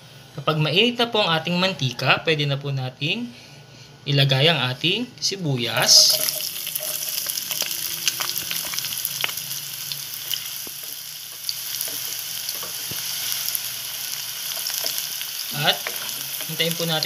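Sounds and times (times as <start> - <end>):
onions sizzling in oil: 5.9 - 17.0.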